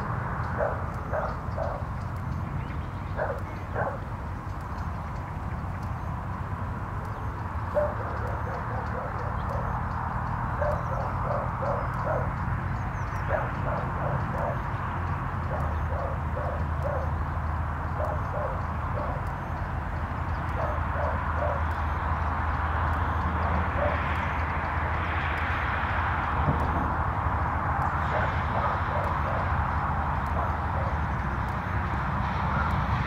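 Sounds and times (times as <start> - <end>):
steady low rumble: 0.0 - 33.0
distant dog barking: 0.4 - 4.9, 7.0 - 19.6, 20.3 - 22.3, 22.9 - 24.8, 27.9 - 32.9.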